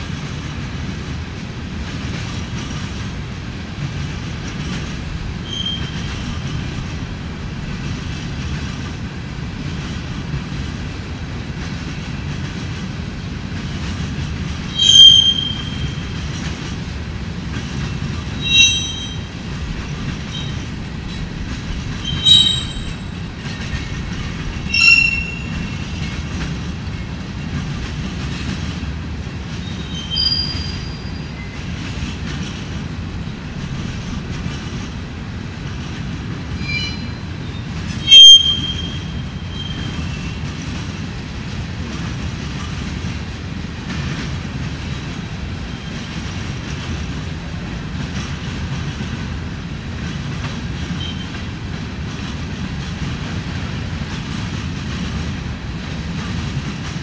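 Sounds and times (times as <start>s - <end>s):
freight train rolling rumble: 0.0s - 57.0s
high-pitched wheel squeals: 5.4s - 6.2s, 14.7s - 16.1s, 18.4s - 19.3s, 20.3s - 20.6s, 22.0s - 23.2s, 24.7s - 26.0s, 29.6s - 31.6s, 36.6s - 40.4s.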